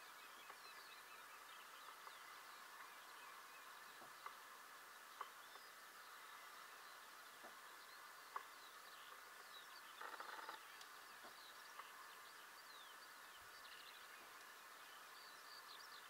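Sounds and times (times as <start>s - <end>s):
songbirds chirping: 0.0s - 16.0s
grouse hissing call: 10.0s - 10.6s.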